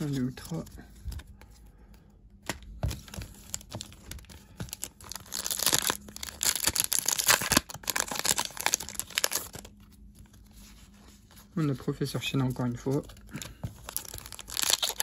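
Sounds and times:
foil wrapper tearing and crinkling: 0:03.5 - 0:09.7, 0:13.8 - 0:15.0.

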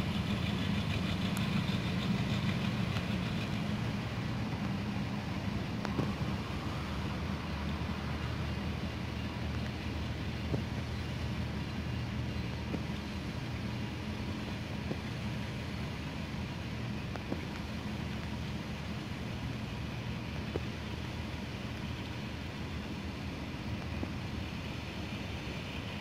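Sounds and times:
faint ticks: 0:00.2 - 0:03.6.

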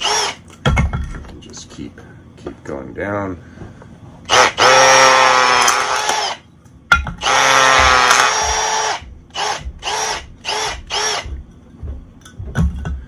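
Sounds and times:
drill motor spinning: 0:00.0 - 0:00.4, 0:04.3 - 0:06.4, 0:07.2 - 0:11.4.

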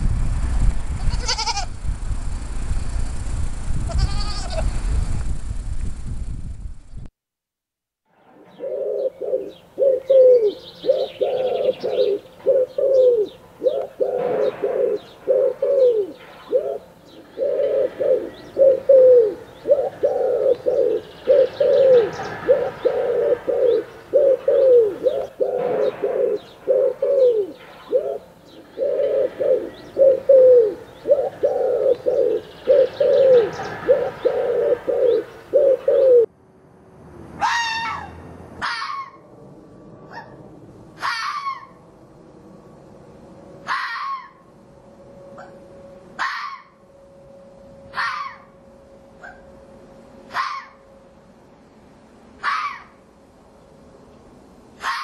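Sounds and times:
bird cooing: 0:08.4 - 0:36.3.

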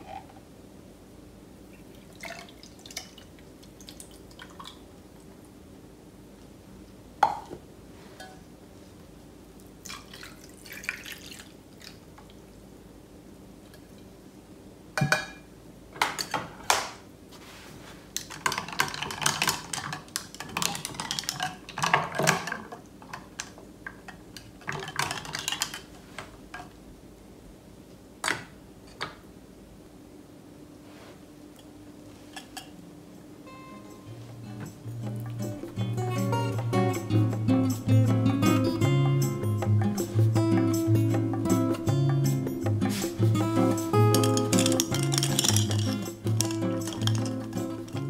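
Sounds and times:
juice pouring over ice: 0:09.8 - 0:12.0
ice cubes clinking against glass: 0:44.1 - 0:47.9.

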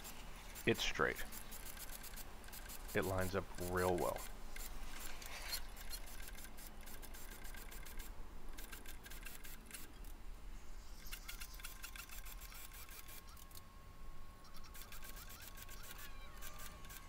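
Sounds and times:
rapid patter of clicks and ticks: 0:00.0 - 0:10.2, 0:11.0 - 0:13.6.

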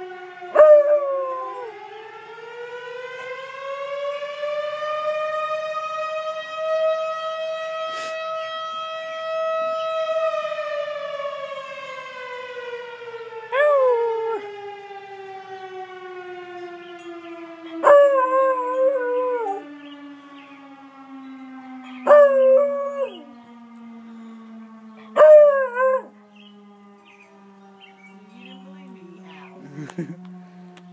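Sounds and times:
fire siren wailing: 0:00.0 - 0:30.9
dog howling: 0:00.6 - 0:01.8, 0:13.5 - 0:14.5, 0:22.0 - 0:23.3, 0:25.0 - 0:26.1.

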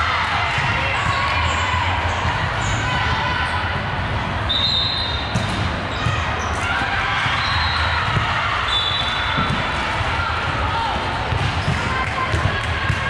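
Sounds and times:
gym background noise: 0:00.0 - 0:13.0
basketball bouncing: 0:11.2 - 0:13.0.

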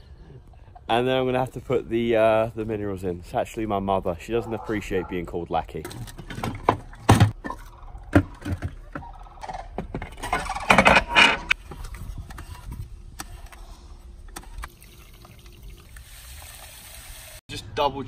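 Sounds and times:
plastic scraping clatter: 0:05.9 - 0:12.5.

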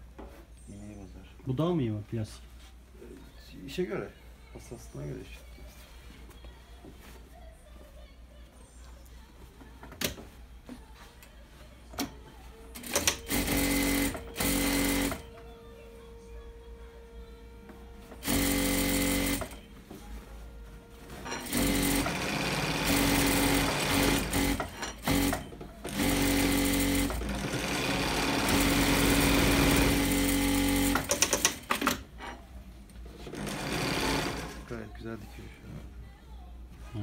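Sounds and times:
sewing machine stitching fabric: 0:12.8 - 0:15.2, 0:18.2 - 0:19.6, 0:21.1 - 0:32.0, 0:33.2 - 0:34.7.

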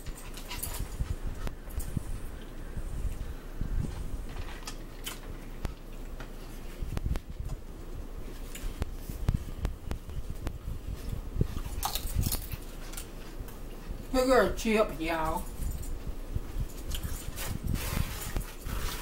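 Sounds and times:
crackly rustles: 0:00.0 - 0:14.2, 0:15.3 - 0:19.0
chewing food: 0:04.3 - 0:07.6, 0:08.3 - 0:14.1, 0:15.5 - 0:19.0.

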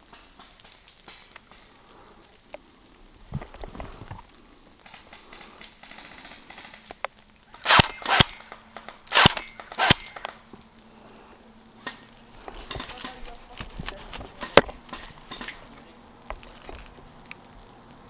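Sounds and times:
airsoft gun shots: 0:07.6 - 0:10.3.

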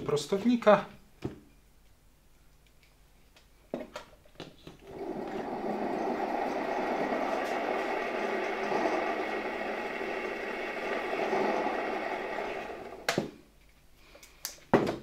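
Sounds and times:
vacuum cleaner motor whirring: 0:04.8 - 0:13.3.

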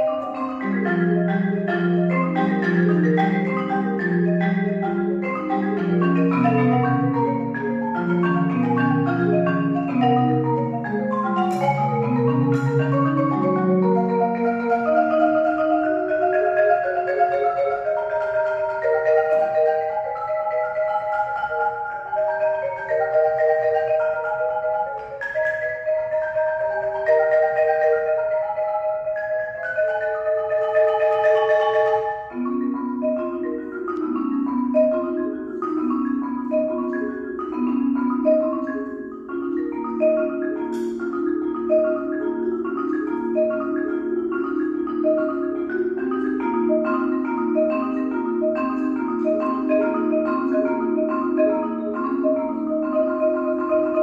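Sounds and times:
marimba played with mallets: 0:00.0 - 0:54.0.

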